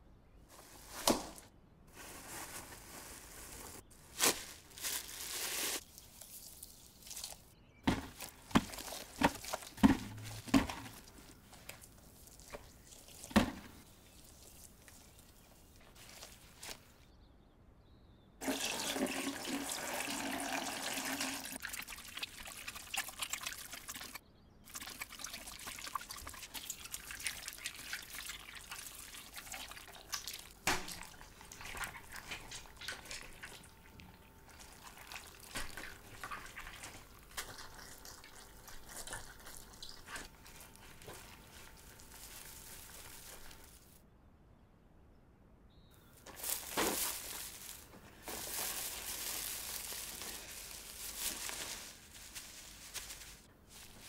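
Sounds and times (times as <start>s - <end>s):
wet clay squelching and slapping: 4.2s - 16.9s, 21.6s - 43.9s.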